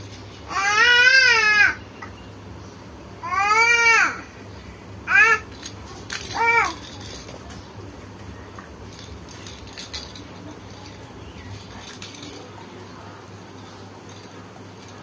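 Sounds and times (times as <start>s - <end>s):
plastic baby rattle: 5.3s - 7.6s, 8.8s - 12.6s, 13.5s - 15.0s.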